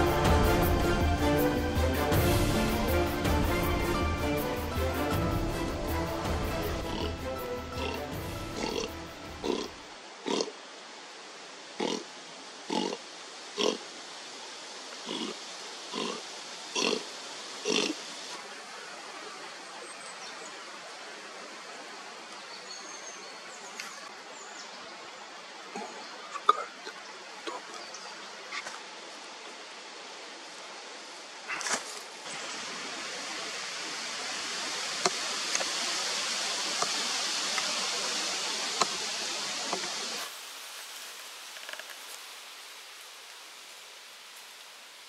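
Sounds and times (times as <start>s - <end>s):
soft forest hiss: 0.0s - 45.0s
faint crackles and ticks: 39.7s - 43.4s.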